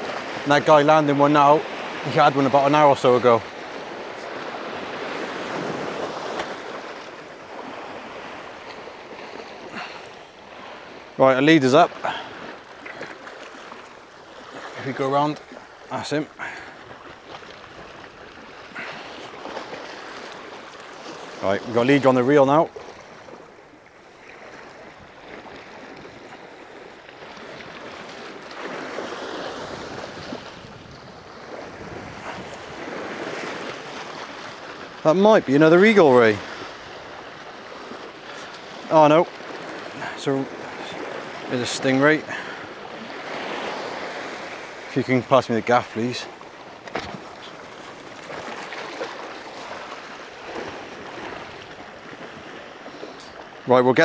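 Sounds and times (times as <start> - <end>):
surf washing against rocks: 0.0 - 54.0
wind on microphone: 29.4 - 34.0.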